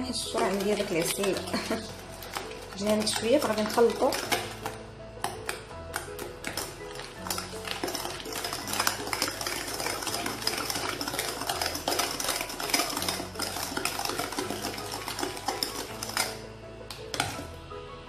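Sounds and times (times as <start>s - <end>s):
spoon beating batter in glass bowl: 0.0s - 17.6s.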